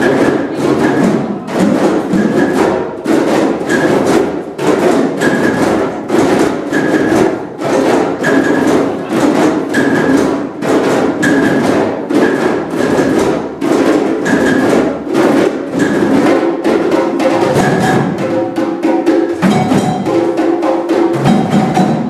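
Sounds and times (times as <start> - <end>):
hand drums playing fast rhythm: 0.0 - 22.0
high-pitched knock: 0.0 - 22.0.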